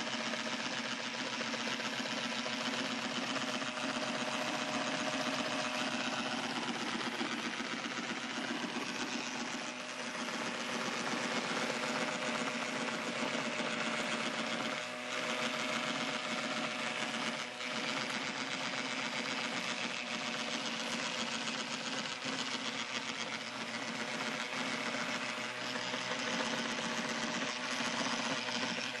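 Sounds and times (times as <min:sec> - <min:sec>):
robot mower motors whirring: 0:00.0 - 0:29.0.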